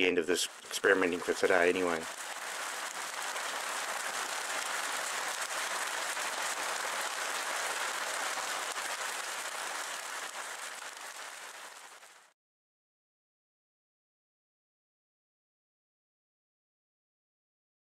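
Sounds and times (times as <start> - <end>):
rain pattering on lawn and path: 0.0 - 12.3.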